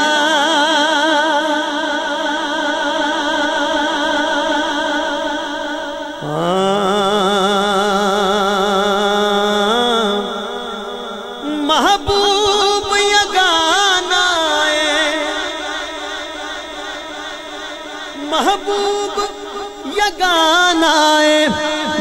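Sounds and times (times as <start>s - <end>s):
man singing through microphone: 0.0s - 22.0s.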